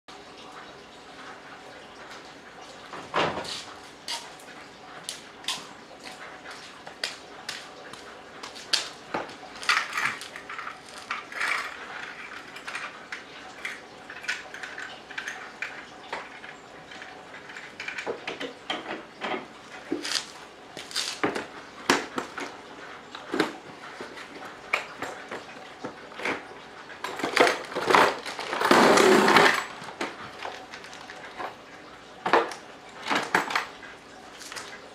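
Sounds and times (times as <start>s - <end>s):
tools rattling in plastic case: 9.6s - 19.0s, 27.0s - 31.6s.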